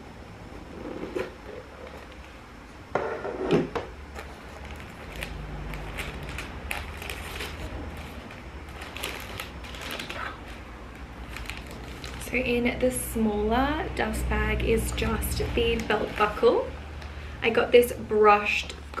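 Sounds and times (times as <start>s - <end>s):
box lid scraping off: 0.6s - 2.2s
tissue paper rustling: 4.2s - 12.4s.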